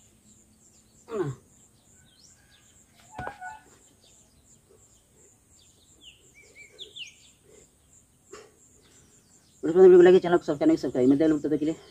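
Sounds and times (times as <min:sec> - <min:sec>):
small birds chirping: 0:00.0 - 0:11.9
man grunting: 0:01.1 - 0:01.4.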